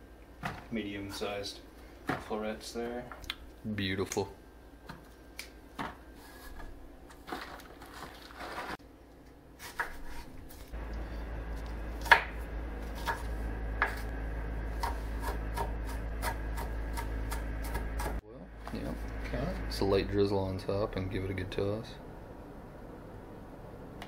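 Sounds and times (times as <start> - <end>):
knife chopping on wooden board: 12.0 - 14.1, 14.8 - 18.2.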